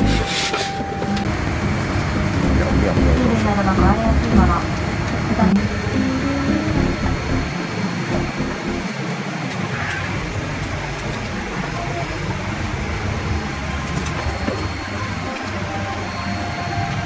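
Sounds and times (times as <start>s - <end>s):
low engine drone: 0.0s - 9.5s.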